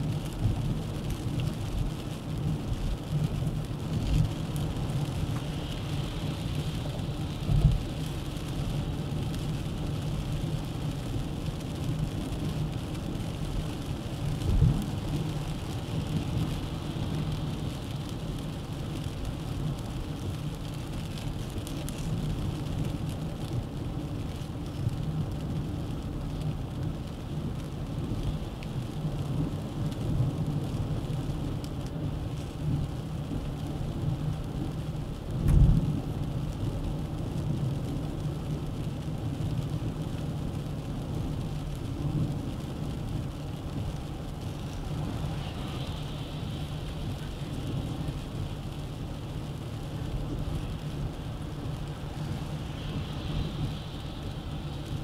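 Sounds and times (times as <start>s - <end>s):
low engine hum: 0.0s - 55.0s
road and tyre noise: 0.0s - 55.0s.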